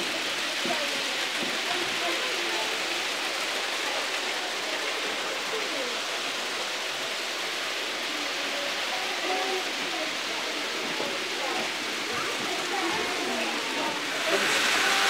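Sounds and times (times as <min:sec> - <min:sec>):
model train wheels rushing on track: 0:00.0 - 0:15.0.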